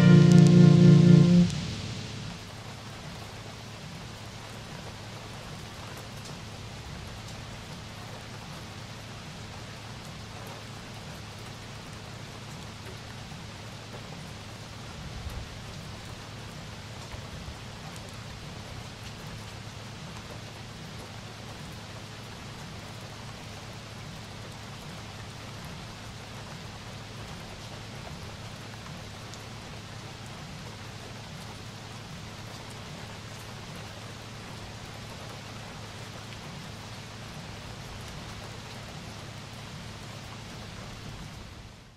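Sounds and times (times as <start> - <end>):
low hum: 0.0 - 2.6
steady rain hiss: 0.0 - 41.9.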